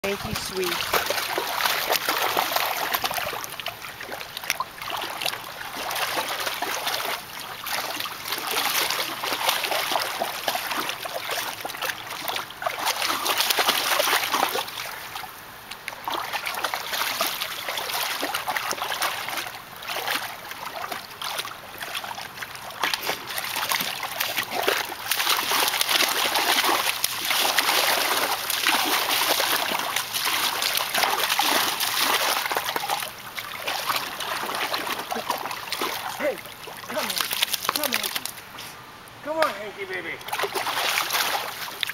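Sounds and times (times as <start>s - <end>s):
dog splashing in water: 0.0s - 38.4s, 40.2s - 41.9s.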